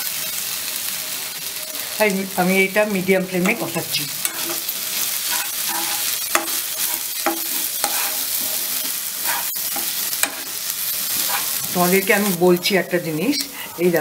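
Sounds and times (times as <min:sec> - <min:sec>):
paste sizzling in oil: 0:00.0 - 0:14.0
metal spatula scraping a pan: 0:03.4 - 0:12.4.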